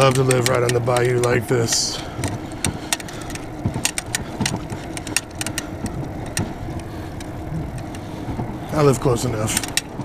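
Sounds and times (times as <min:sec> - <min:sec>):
bicycle clicks and rattles: 0:00.0 - 0:10.0
wind and road rumble: 0:00.0 - 0:10.0.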